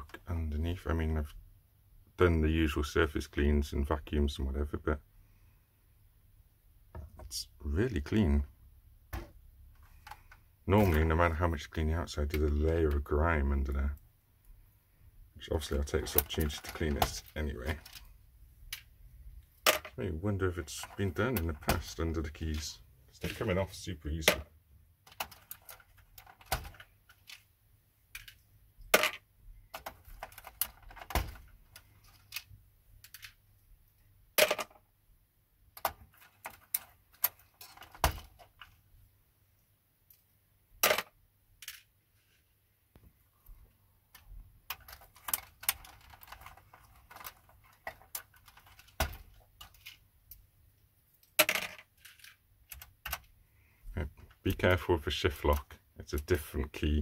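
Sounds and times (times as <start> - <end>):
plastic keycaps clicking: 44.2 - 49.9.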